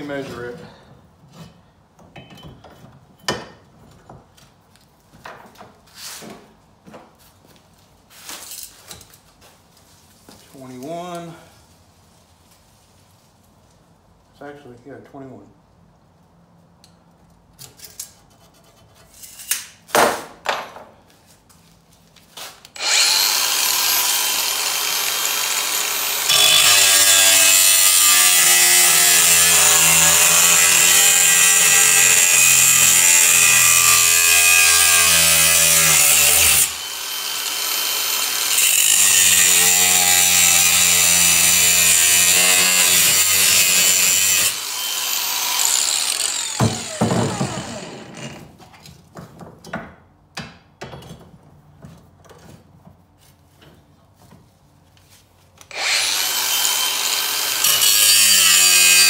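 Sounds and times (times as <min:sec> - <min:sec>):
angle grinder cutting steel: 0:22.8 - 0:48.4, 0:55.7 - 0:59.0.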